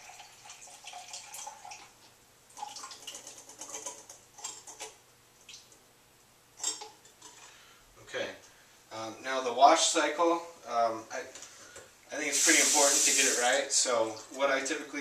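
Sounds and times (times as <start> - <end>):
liquid trickling into a cup: 0.0 - 1.9, 2.5 - 5.7.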